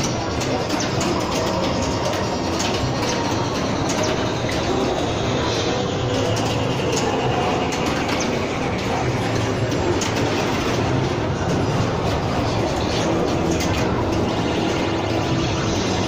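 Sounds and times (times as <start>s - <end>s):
pinball machines clattering: 0.0s - 16.0s
sharp mechanical clicks and knocks: 0.0s - 16.0s.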